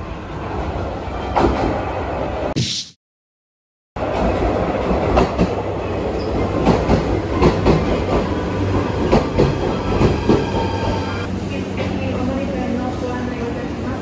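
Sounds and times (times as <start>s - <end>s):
train running gear rumble: 4.0s - 14.0s.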